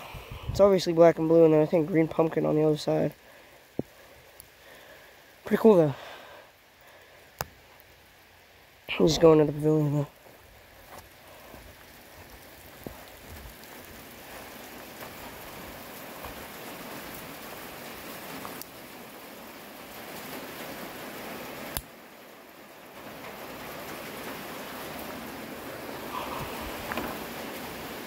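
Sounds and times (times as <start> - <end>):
heavy rain pouring: 0.0 - 28.0.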